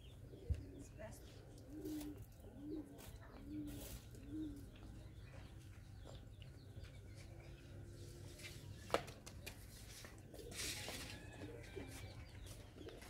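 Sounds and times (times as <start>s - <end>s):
dove cooing: 0.0s - 6.0s, 10.3s - 11.8s.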